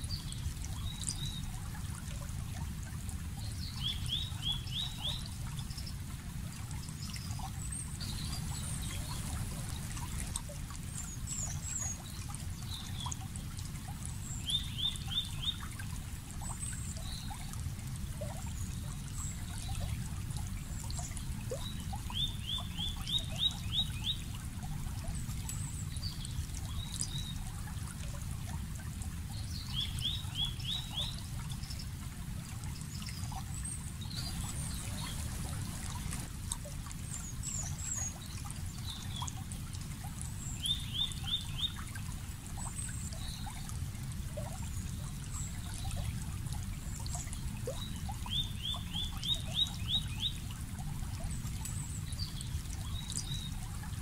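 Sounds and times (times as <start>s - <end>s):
birds chirping: 8.0s - 10.3s, 34.2s - 36.3s
creek water rushing: 8.0s - 11.0s, 34.1s - 37.1s.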